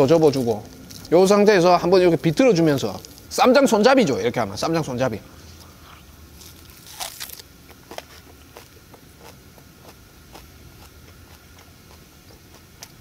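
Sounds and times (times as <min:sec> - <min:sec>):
mouth chewing crunchy food: 0:00.0 - 0:01.4, 0:05.4 - 0:13.0.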